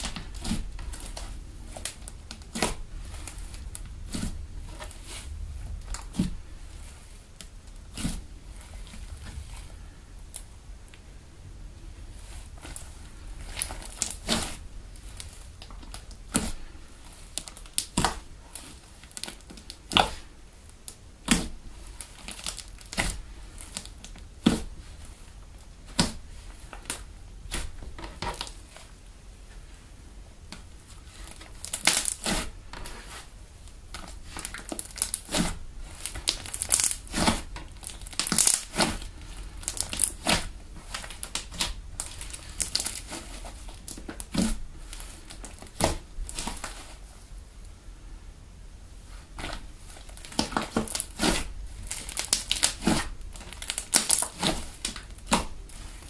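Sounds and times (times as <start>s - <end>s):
slime popping and crackling: 12.5s - 20.3s, 20.9s - 24.9s, 31.1s - 33.0s, 33.9s - 46.8s, 49.4s - 56.0s.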